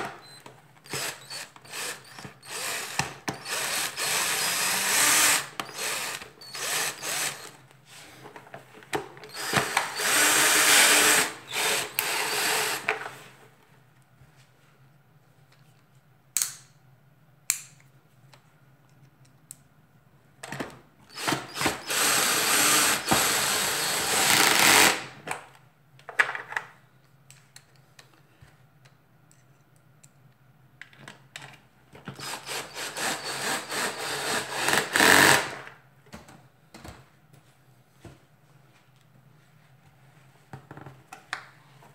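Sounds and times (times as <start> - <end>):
cordless drill driving screws: 0.2 - 7.6, 9.3 - 12.9, 21.1 - 25.1, 32.2 - 35.6.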